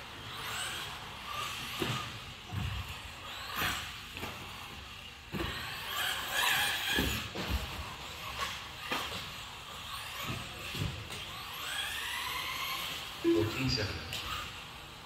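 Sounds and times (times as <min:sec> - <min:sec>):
electric motor whine: 0:00.0 - 0:15.0
chassis and tyre thumps: 0:01.3 - 0:11.7.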